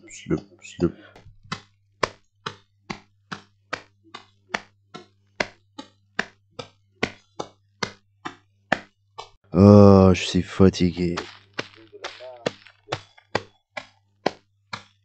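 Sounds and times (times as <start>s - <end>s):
sharp clicks of footsteps: 10.8s - 14.9s.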